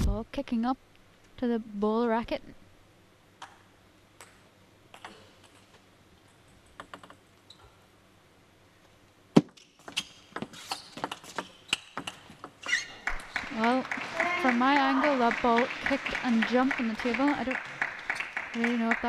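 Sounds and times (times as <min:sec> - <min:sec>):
ping pong ball clicking: 0:06.7 - 0:07.2.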